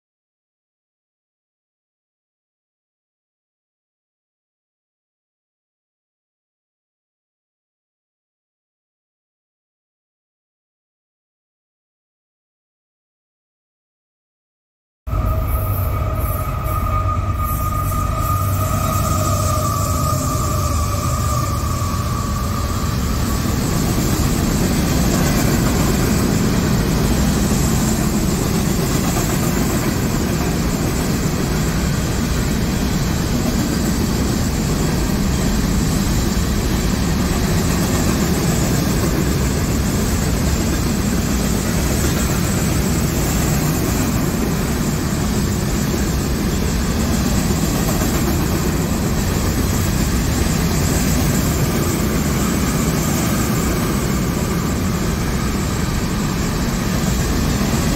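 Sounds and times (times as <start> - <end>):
freight train rolling on rails: 15.1 - 57.9.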